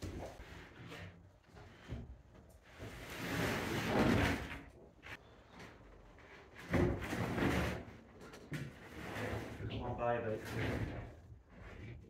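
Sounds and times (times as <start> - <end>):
board scraping as pushed: 2.7 - 4.6, 6.4 - 8.0, 8.7 - 12.0.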